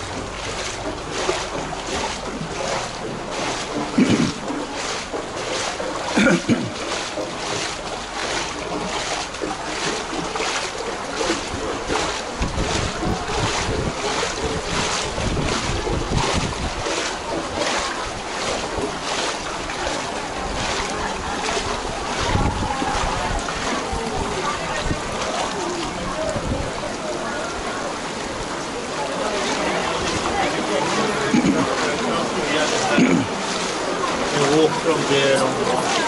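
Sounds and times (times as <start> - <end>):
footsteps splashing through water: 0.0 - 36.0
wind rumble on microphone: 11.3 - 19.0, 19.6 - 27.8.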